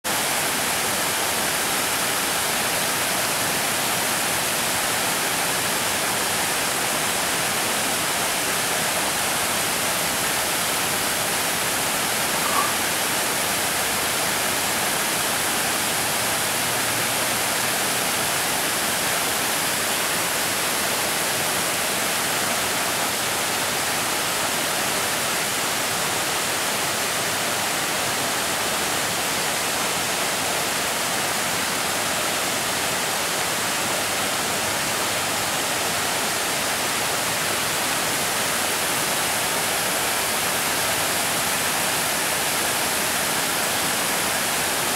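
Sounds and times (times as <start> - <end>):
creek water rushing over rocks: 0.1 - 44.9
brief blip: 12.4 - 12.8.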